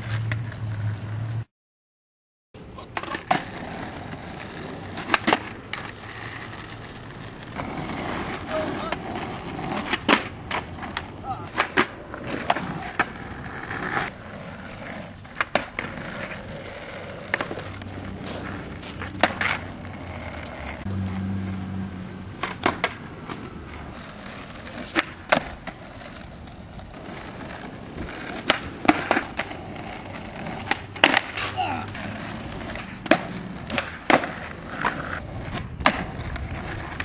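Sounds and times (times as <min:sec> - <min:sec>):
skateboard wheels rolling on asphalt: 0:00.0 - 0:01.5, 0:02.6 - 0:37.0
skateboard clacks: 0:02.8 - 0:21.6, 0:22.3 - 0:37.0.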